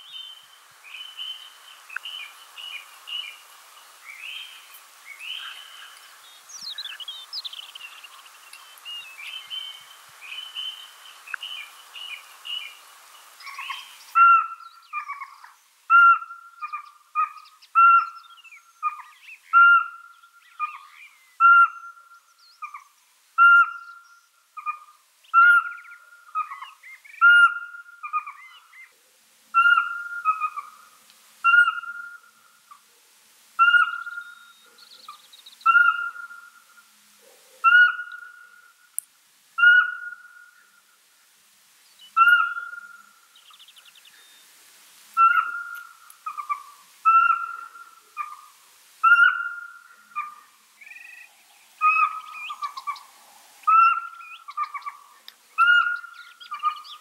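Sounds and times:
owl whistled toots: 29.6 - 30.7, 31.4 - 32.3, 33.6 - 34.7, 35.7 - 36.5, 37.6 - 38.6, 39.6 - 40.5, 42.2 - 43.0, 45.2 - 48.4, 49.0 - 55.0, 55.6 - 57.0.

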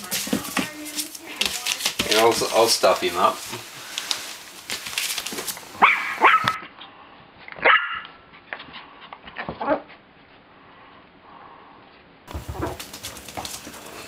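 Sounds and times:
puppies yipping and barking: 5.8 - 6.6.

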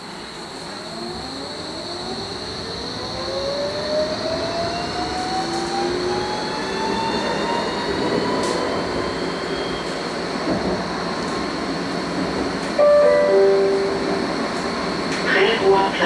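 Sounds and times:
tram rolling noise: 0.0 - 16.0
tram traction motor whine: 0.0 - 16.0
steady high whine: 12.8 - 16.0.

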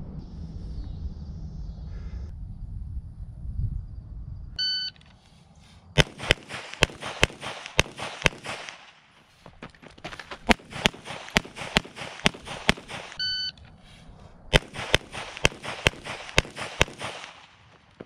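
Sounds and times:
low rumbling: 0.0 - 4.9
shot timer beep: 4.6 - 5.0, 13.2 - 13.6
pistol shots: 6.0 - 9.1, 10.4 - 13.2, 14.5 - 18.0.

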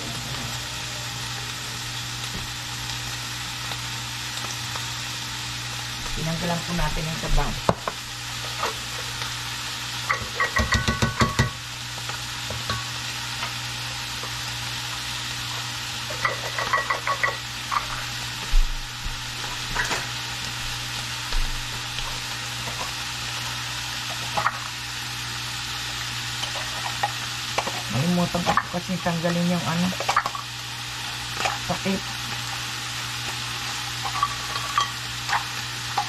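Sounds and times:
meat sizzling in a pan: 0.0 - 36.0
metal utensil scraping pan: 34.0 - 36.0.

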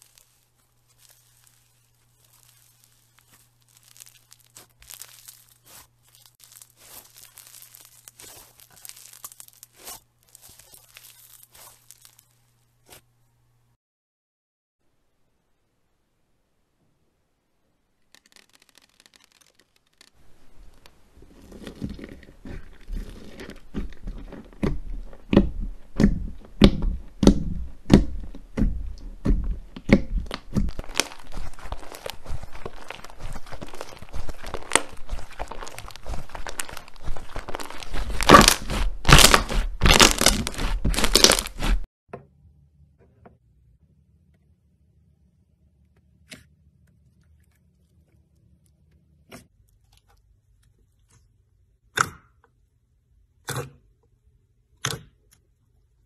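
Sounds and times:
slime popping and crackling: 0.0 - 13.0, 18.2 - 20.8, 21.4 - 41.9.

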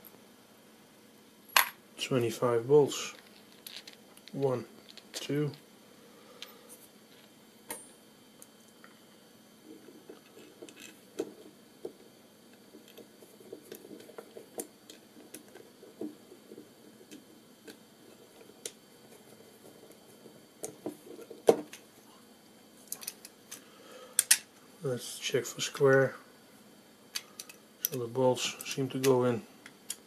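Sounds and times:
hands handling plastic parts: 3.0 - 5.4.

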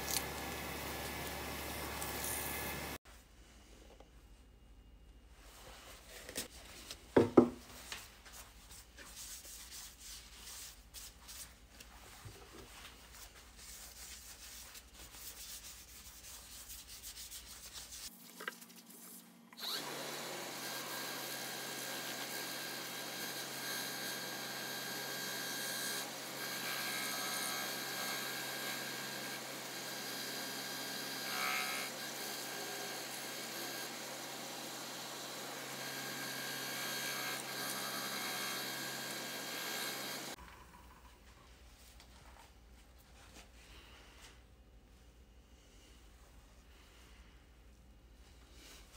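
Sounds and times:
lathe spinning: 19.6 - 40.4.

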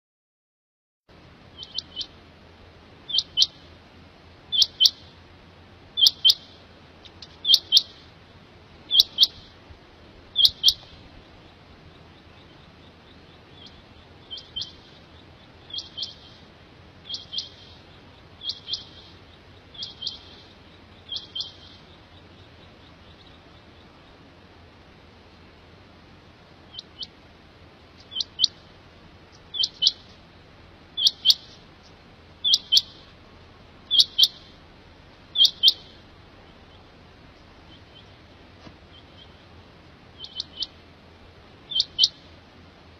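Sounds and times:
faint low hum: 1.1 - 42.9
quail calling: 1.5 - 2.2, 3.1 - 3.7, 4.5 - 5.2, 6.0 - 8.1, 8.9 - 9.6, 10.3 - 24.3, 26.6 - 27.2, 28.0 - 28.7, 29.3 - 30.2, 30.9 - 33.2, 33.8 - 34.6, 35.2 - 40.8, 41.6 - 42.3.

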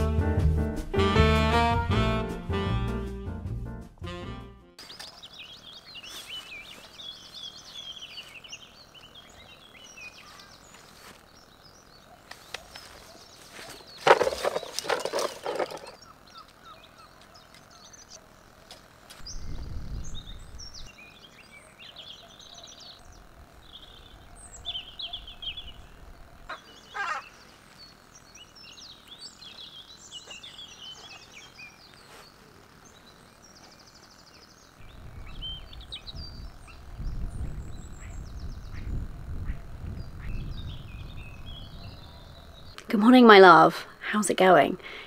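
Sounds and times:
songbirds singing and chirping: 4.8 - 45.0
wind rumble on microphone: 19.2 - 20.9, 34.8 - 42.8.

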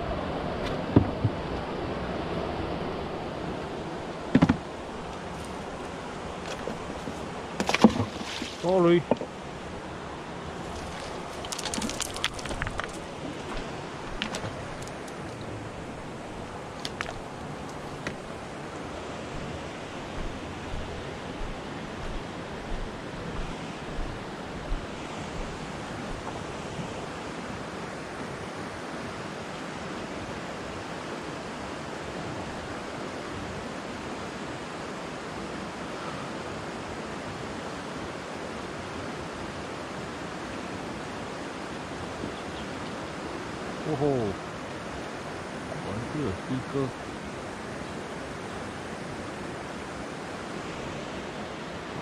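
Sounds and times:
mountain stream rushing: 0.0 - 52.0
low thumps: 20.1 - 26.4.

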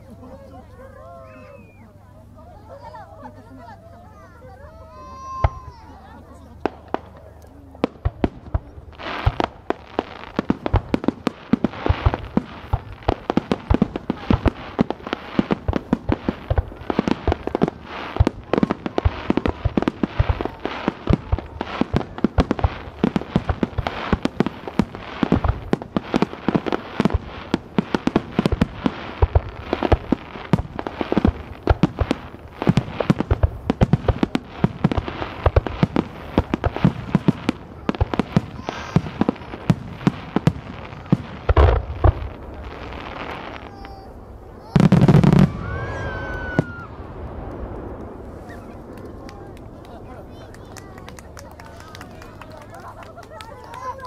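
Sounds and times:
sharp fireworks bangs: 6.6 - 49.6.

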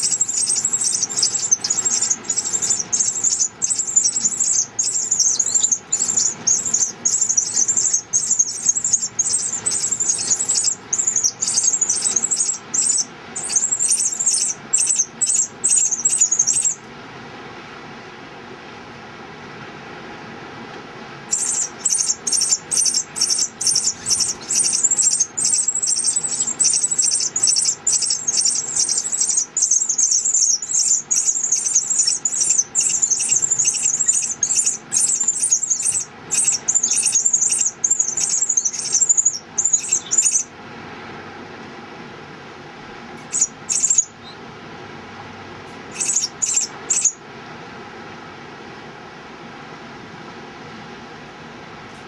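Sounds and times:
nestlings squeaking: 0.0 - 16.8, 21.3 - 40.5, 43.3 - 44.4, 45.9 - 47.2.

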